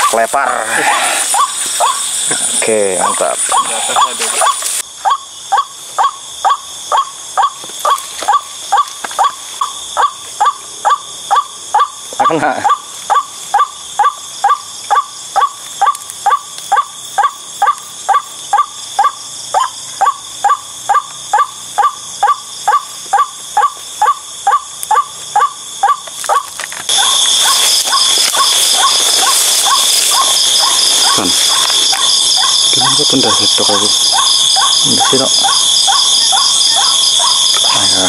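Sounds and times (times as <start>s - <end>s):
waterhen calling: 0.0s - 5.2s, 20.0s - 38.0s.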